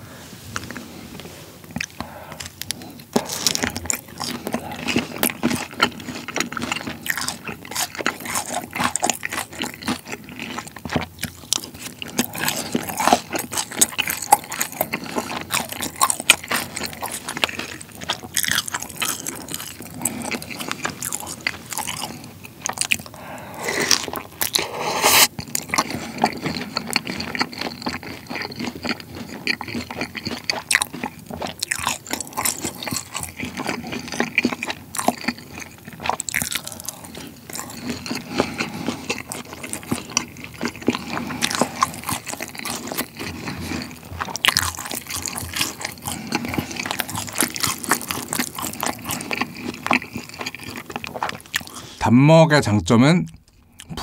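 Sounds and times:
wet crunching and chewing: 0:00.5 - 0:52.0, 0:53.3 - 0:54.0.

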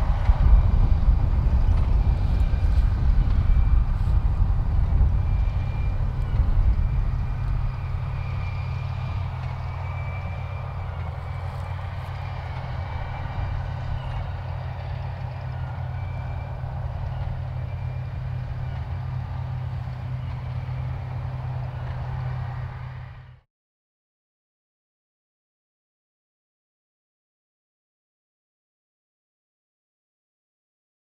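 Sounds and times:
baler working: 0:00.0 - 0:23.4
tractor diesel engine droning: 0:00.0 - 0:23.4.

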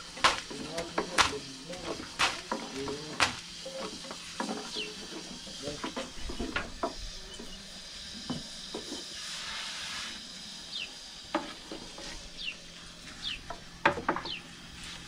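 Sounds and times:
steady hiss: 0:00.0 - 0:15.0
rolling pins knocking on wooden boards: 0:13.8 - 0:14.4.

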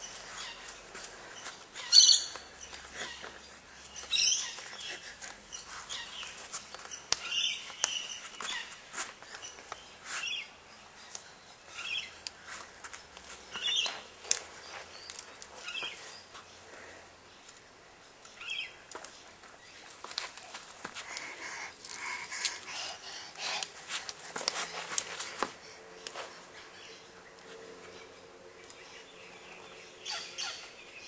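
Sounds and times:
birds chirping: 0:00.0 - 0:23.7, 0:24.4 - 0:31.0.

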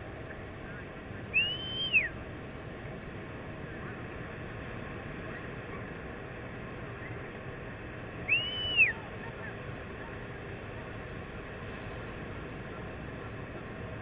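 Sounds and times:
wind: 0:00.0 - 0:14.0
loud rising and falling whistles: 0:01.3 - 0:02.2, 0:08.2 - 0:09.1.

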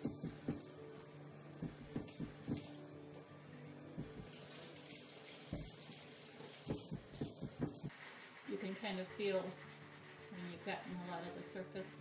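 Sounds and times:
sink sprayer hissing water: 0:00.0 - 0:02.8, 0:03.8 - 0:09.6.

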